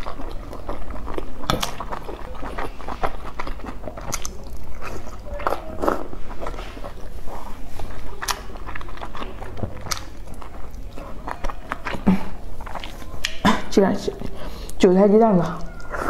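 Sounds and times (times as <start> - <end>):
mouth clicks and smacks: 0.0 - 7.1, 7.9 - 14.8
person chewing wetly: 0.0 - 16.0.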